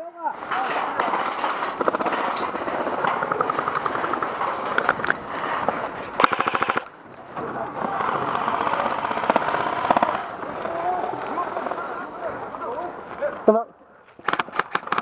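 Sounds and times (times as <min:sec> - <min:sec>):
airsoft guns firing bursts: 0:00.9 - 0:05.5, 0:06.2 - 0:06.9, 0:07.8 - 0:11.8, 0:14.2 - 0:15.0.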